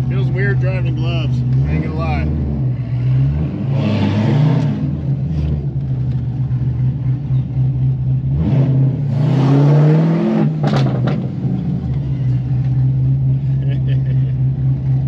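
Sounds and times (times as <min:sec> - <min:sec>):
car engine revving inside cabin: 0:00.0 - 0:12.0.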